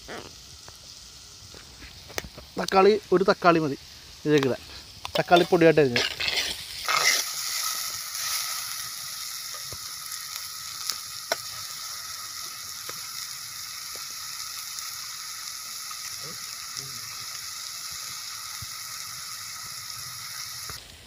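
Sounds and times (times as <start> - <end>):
food sizzling in hot oil: 0.0 - 21.0.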